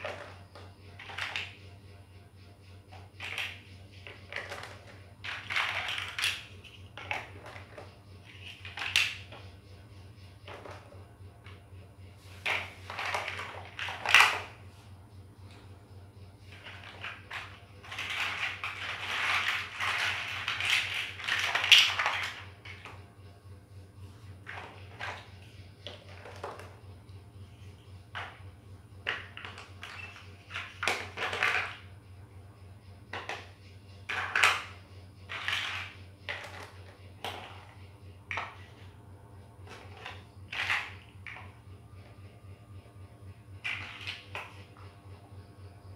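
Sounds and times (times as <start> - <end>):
plastic toy bricks clattering: 0.0 - 1.6, 3.0 - 9.4, 10.4 - 11.6, 12.4 - 14.6, 16.5 - 23.0, 24.4 - 26.8, 27.7 - 28.4, 29.0 - 31.9, 33.1 - 38.9, 39.6 - 41.6, 43.6 - 44.7.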